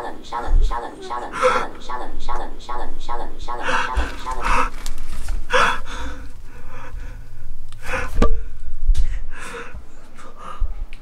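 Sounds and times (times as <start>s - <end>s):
person gasping and breathing hard: 1.2s - 1.8s, 3.5s - 10.9s.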